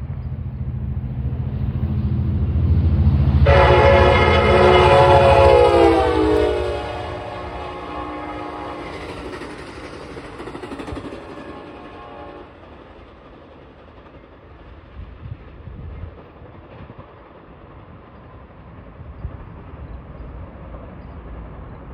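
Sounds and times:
train clanking: 0:00.0 - 0:21.9
train rumbling: 0:00.0 - 0:21.9
train horn: 0:03.4 - 0:09.4, 0:11.3 - 0:12.6.

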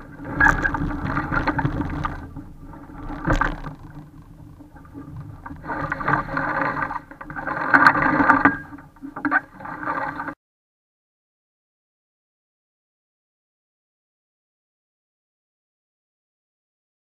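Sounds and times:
water splashing along a hull: 0:00.0 - 0:10.4.

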